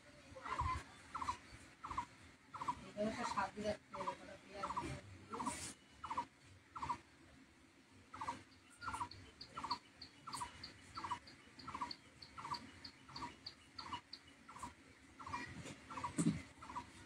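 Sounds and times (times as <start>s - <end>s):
thin high bird chirps: 8.2s - 16.8s.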